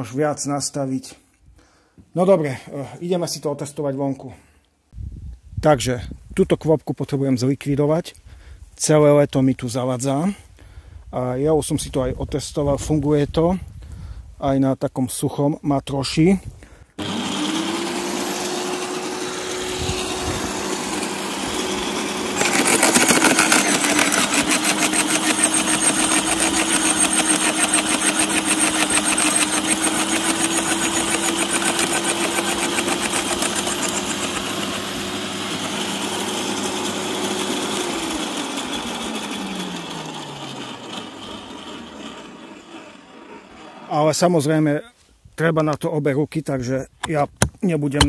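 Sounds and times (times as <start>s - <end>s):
branches crackling in shredder: 17.0s - 43.2s
shredder motor whining: 17.0s - 43.9s.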